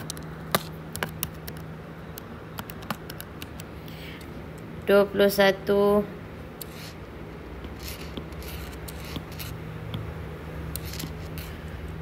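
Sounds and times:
steady low hum: 0.0 - 12.0
stylus scratching on screen: 6.6 - 9.6, 10.7 - 11.6.

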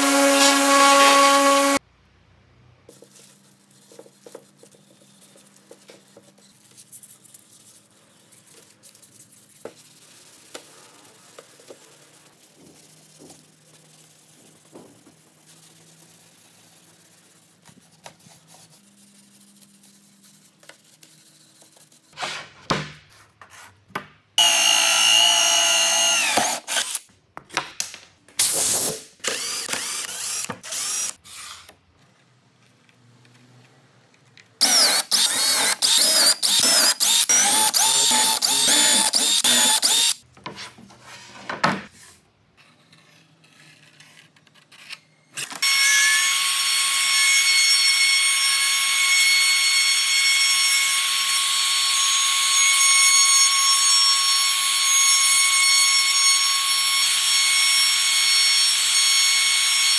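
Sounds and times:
power tool whine: 24.4 - 27.0.

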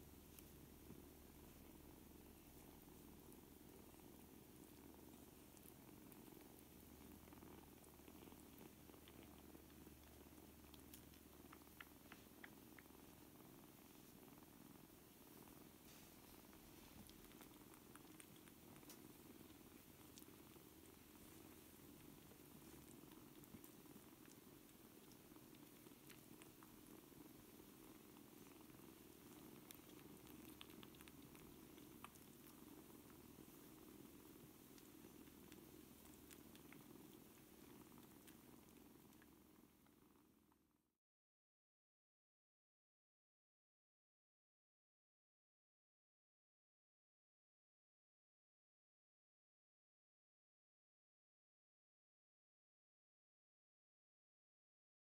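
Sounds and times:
cats purring: 0.0 - 40.9
tiny ticks: 8.0 - 13.3, 16.4 - 40.0.

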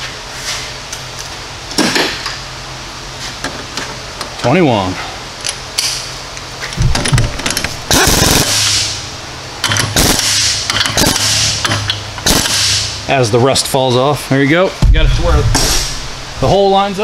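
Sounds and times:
air impact wrench rattling: 6.8 - 13.0.

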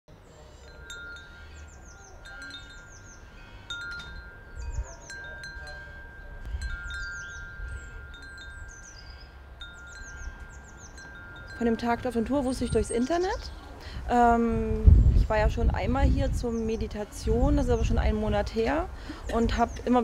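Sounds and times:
wind chimes ringing: 0.1 - 14.5
low wind rumble: 0.7 - 20.0.

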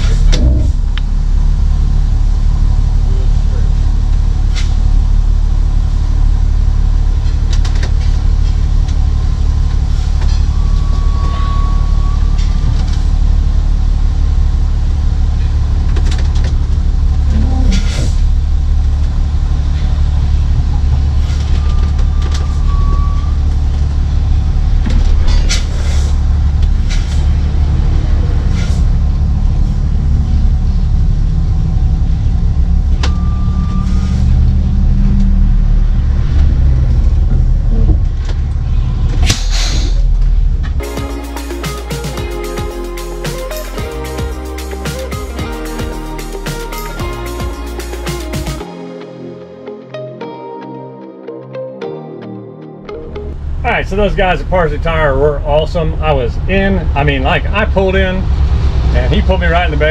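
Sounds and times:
diesel engine idling: 0.0 - 49.4, 53.0 - 59.9
high beep: 10.4 - 12.6, 21.6 - 23.4, 33.0 - 34.1.

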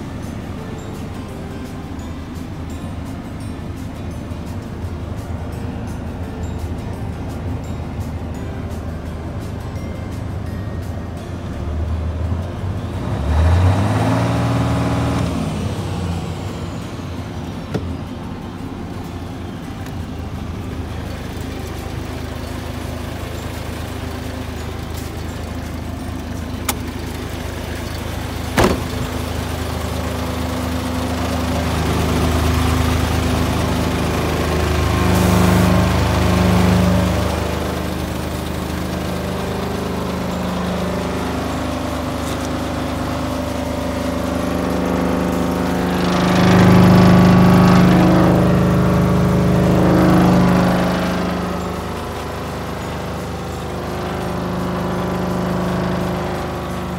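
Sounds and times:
diesel truck engine idling: 0.0 - 56.9.

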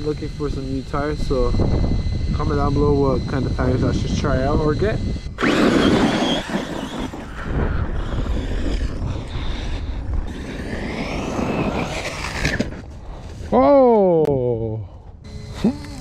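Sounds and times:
electric motor whining: 0.0 - 13.4, 15.0 - 16.0
tyres on dirt: 5.4 - 13.6.

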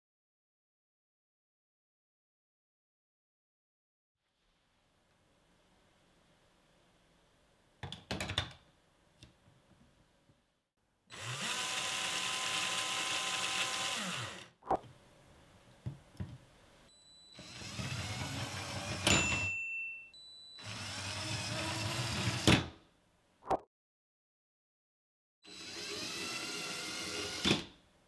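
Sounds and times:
toy train motor whirring: 11.1 - 14.5, 17.4 - 19.1, 25.5 - 27.4.

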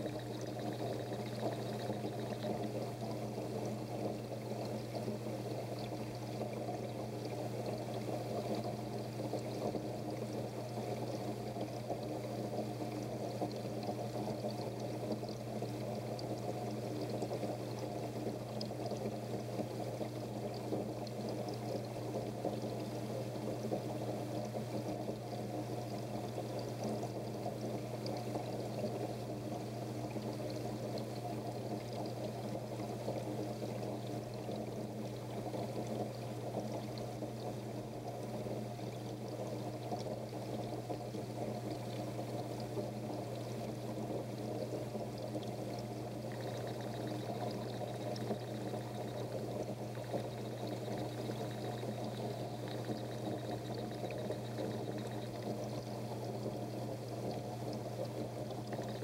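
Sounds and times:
water pouring and trickling: 0.0 - 5.2, 45.1 - 59.0
filter low hum: 0.0 - 59.0.

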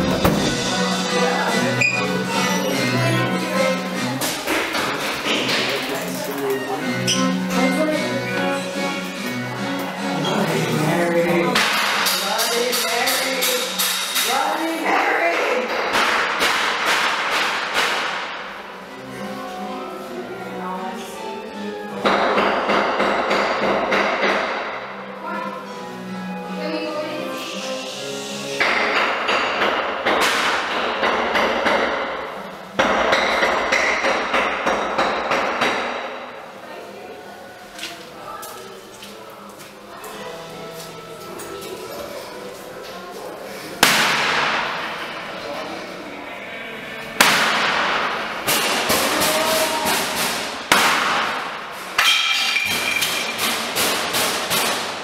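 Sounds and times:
loud rapid banging: 15.3 - 18.6, 47.2 - 51.7
loud bangs: 43.8 - 45.3, 47.2 - 55.0.

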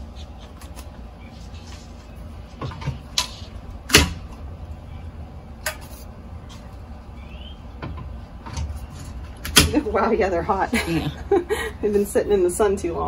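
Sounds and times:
low steady rumble: 0.0 - 13.0
fan blades clicking into place: 7.8 - 9.9.

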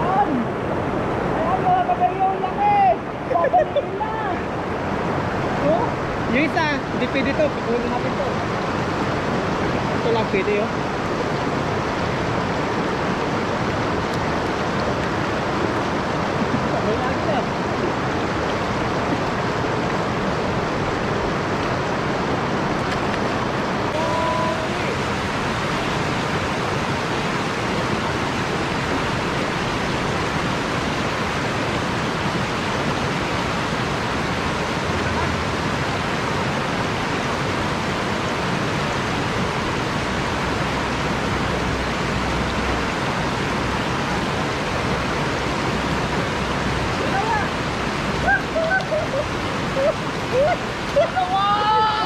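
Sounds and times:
river water rushing over weir: 0.0 - 52.0.

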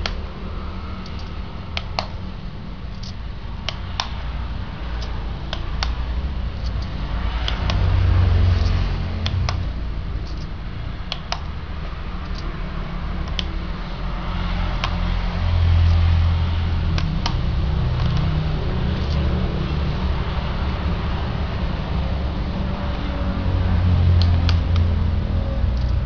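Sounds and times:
steady low hum: 0.0 - 26.0
laptop keys clicking: 1.0 - 2.2, 11.1 - 11.5, 13.2 - 13.6.

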